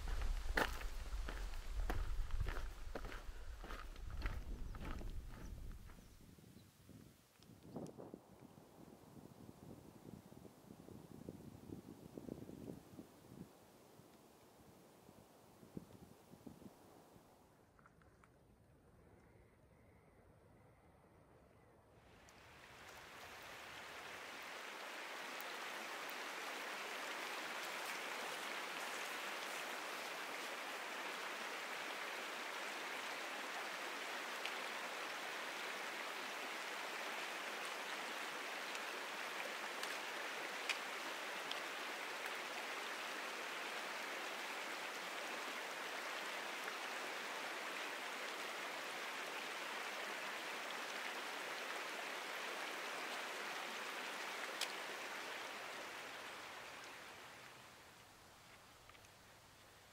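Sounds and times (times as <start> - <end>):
flowing water rushing: 0.0 - 5.5, 22.3 - 58.3
faint ticks: 58.4 - 59.2.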